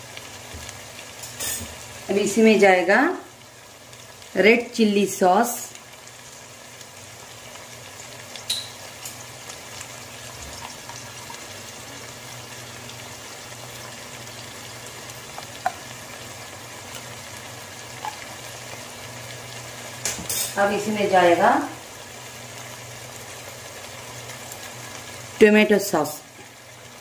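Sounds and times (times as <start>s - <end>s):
vegetables sizzling in pan: 0.0s - 27.0s
metal spoon clicking on pan: 8.5s - 9.2s.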